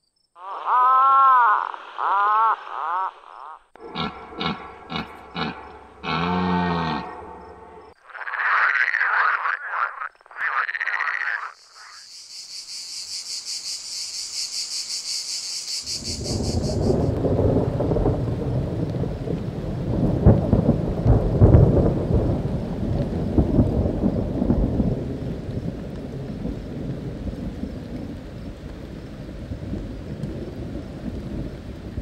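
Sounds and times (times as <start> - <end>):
frogs croaking: 0.0 - 17.2
cicada buzzing: 0.4 - 17.2
red deer stag roaring: 0.6 - 7.4
rain: 15.8 - 32.0
low rolling thunder: 15.9 - 32.0.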